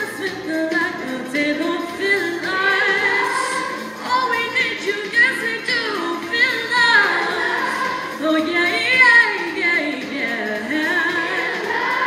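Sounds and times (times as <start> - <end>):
female voice singing with vibrato: 0.0 - 12.0
choir singing: 2.4 - 4.0, 6.9 - 8.6, 10.2 - 12.0.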